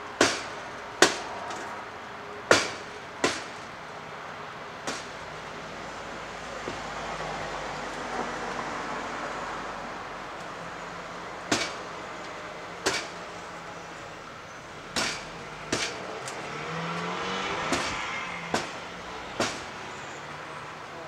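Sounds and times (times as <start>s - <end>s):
steady engine hum: 0.0s - 21.0s.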